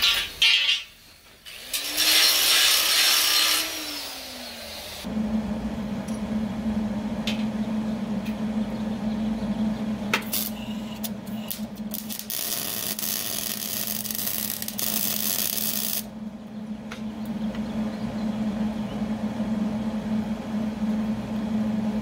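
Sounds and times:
steady low hum: 5.0 - 22.0
welder arc crackling: 10.1 - 16.1.

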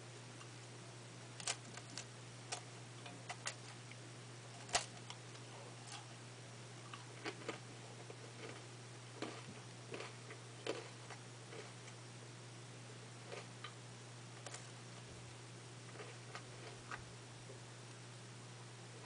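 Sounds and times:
crunchy chewing: 1.4 - 6.2, 6.8 - 12.0, 13.2 - 13.8, 14.4 - 17.1.

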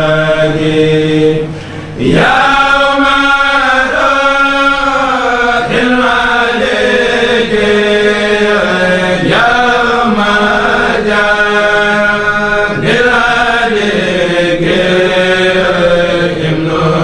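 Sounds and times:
men chanting in unison: 0.0 - 17.0.

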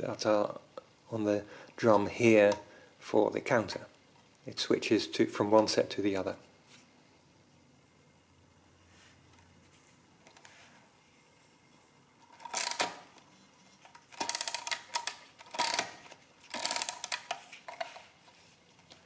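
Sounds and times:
mechanical calculator gears ticking: 14.1 - 17.4.

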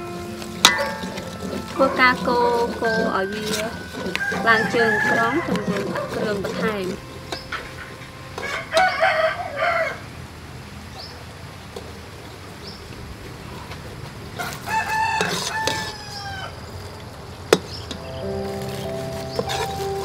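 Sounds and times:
rooster crowing: 0.7 - 7.0, 8.4 - 10.1, 14.4 - 16.7.

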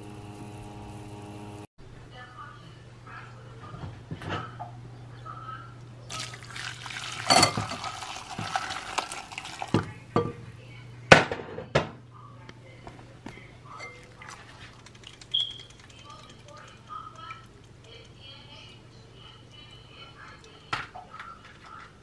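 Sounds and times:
broth splashing into bowl: 6.1 - 10.0, 13.9 - 17.6.

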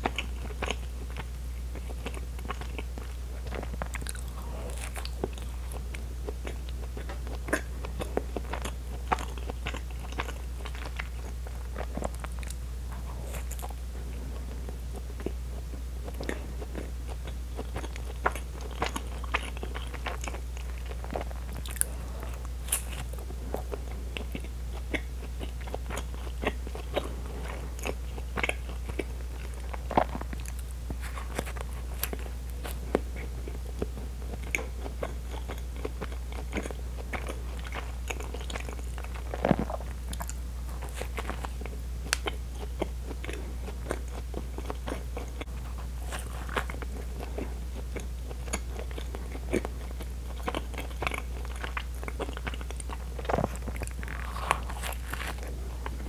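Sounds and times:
chewing with wet mouth clicks: 0.0 - 12.6, 16.0 - 56.0
steady low hum: 0.0 - 56.0
bites tearing bread: 50.5 - 55.5.

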